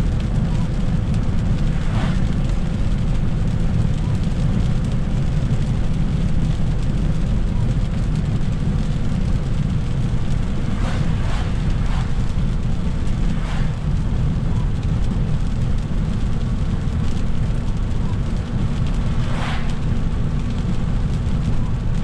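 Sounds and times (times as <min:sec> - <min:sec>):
car tyres and engine rumble: 0:00.0 - 0:22.0
short swishes: 0:10.5 - 0:13.8, 0:19.1 - 0:19.8.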